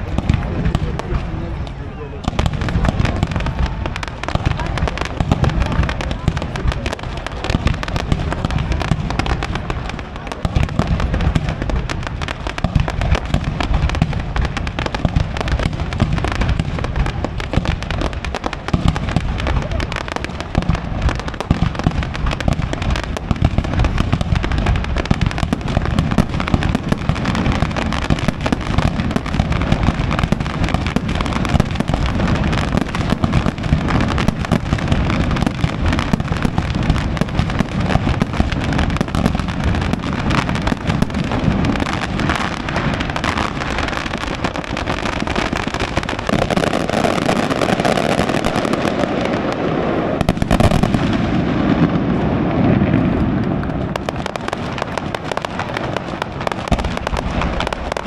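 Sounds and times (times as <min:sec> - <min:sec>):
steady rushing noise: 0:00.0 - 0:01.8
fireworks bangs and crackling: 0:00.0 - 0:58.0.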